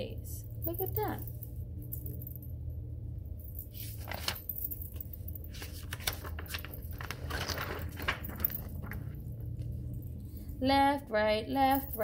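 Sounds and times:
steady low hum: 0:00.0 - 0:12.0
paper page rustling: 0:03.7 - 0:09.4.

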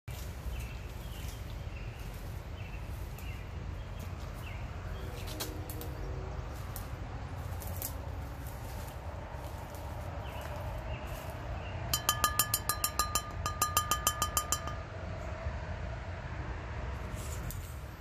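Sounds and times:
footsteps through grass and brush: 0:00.1 - 0:11.6
bird chirping: 0:00.4 - 0:05.3.

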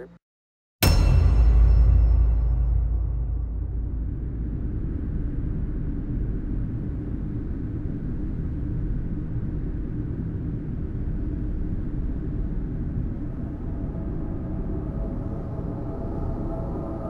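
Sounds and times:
low rumbling ambient drone: 0:00.8 - 0:17.0.

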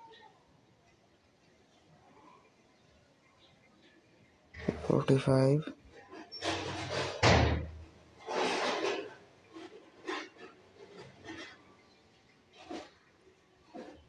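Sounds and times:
knocks and rustling: 0:04.6 - 0:14.0
thump: 0:06.9 - 0:07.8.

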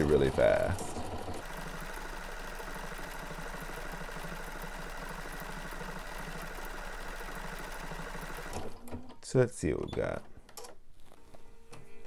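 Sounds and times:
sewing machine running: 0:00.0 - 0:09.0.

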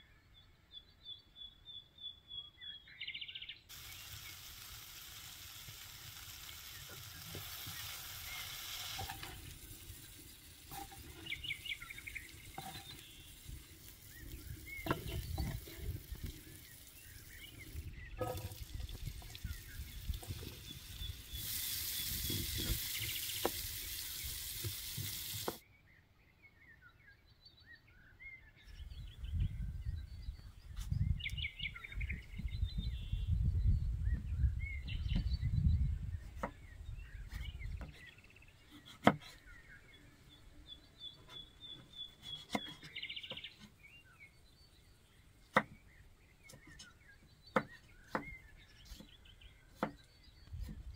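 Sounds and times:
birds chirping: 0:00.0 - 0:50.9
vegetables sizzling in oil: 0:03.7 - 0:25.6.

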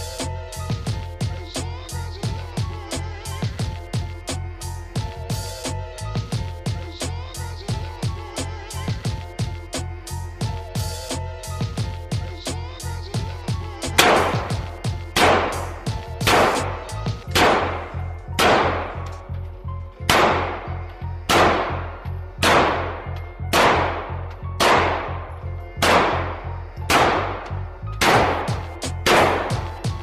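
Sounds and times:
rifle shots echoing indoors: 0:14.0 - 0:14.4, 0:15.2 - 0:15.6, 0:16.2 - 0:16.6, 0:17.3 - 0:19.0, 0:20.1 - 0:20.7, 0:21.3 - 0:21.8, 0:22.4 - 0:25.2, 0:25.8 - 0:26.3, 0:26.9 - 0:27.2, 0:28.0 - 0:29.6.

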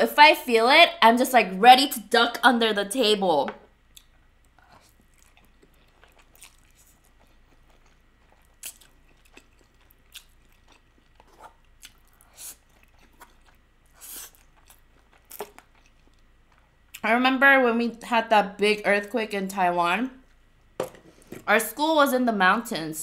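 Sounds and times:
person slurping and chewing noodles: 0:04.0 - 0:16.3.

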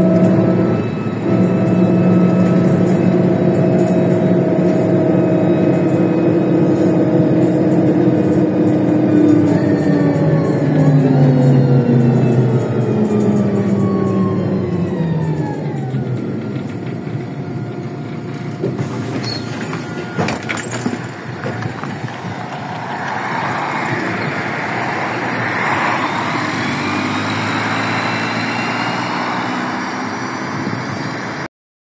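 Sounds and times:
bus engine running: 0:00.0 - 0:31.5
knocks and clatter: 0:15.2 - 0:24.2.

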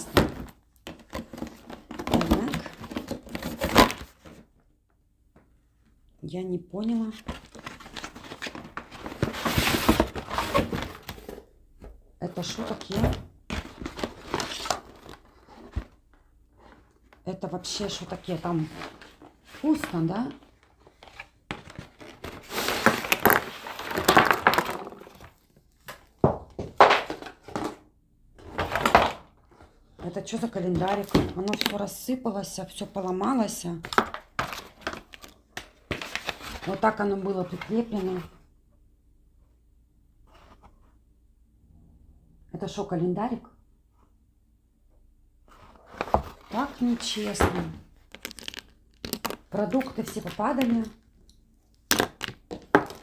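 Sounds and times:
cardboard tearing and rustling: 0:01.1 - 0:04.4, 0:07.3 - 0:11.3, 0:21.5 - 0:25.2, 0:48.1 - 0:49.4
cardboard box rustling and scraping: 0:07.4 - 0:11.4.

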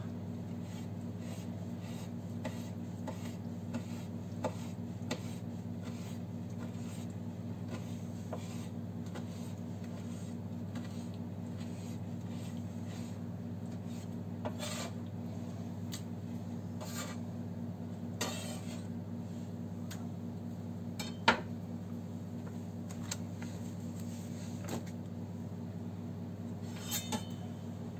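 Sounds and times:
steady low hum: 0:00.0 - 0:27.9
knife cutting on wooden board: 0:14.5 - 0:15.0.

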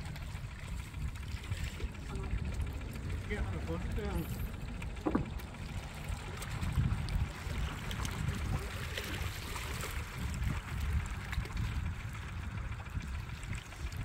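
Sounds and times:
low rumble: 0:00.0 - 0:14.0
waves lapping against rocks: 0:00.0 - 0:14.0.

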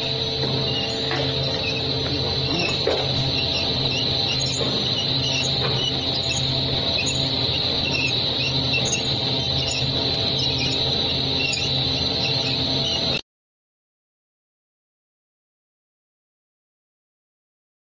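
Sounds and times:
motor hum with high whine: 0:00.0 - 0:13.2.

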